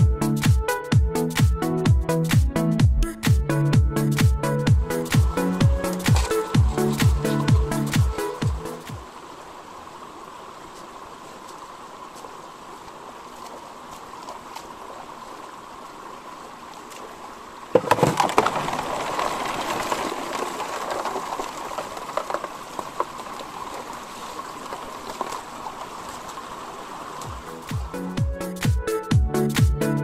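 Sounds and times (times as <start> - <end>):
faint stream flowing: 2.1 - 29.7
water rushing through sluice box: 4.1 - 28.8.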